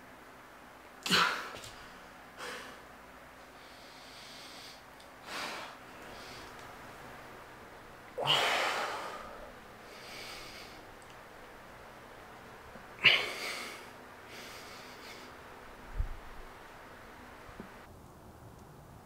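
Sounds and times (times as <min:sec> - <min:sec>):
person breathing heavily: 0:01.1 - 0:06.6, 0:08.2 - 0:11.0, 0:13.0 - 0:15.4.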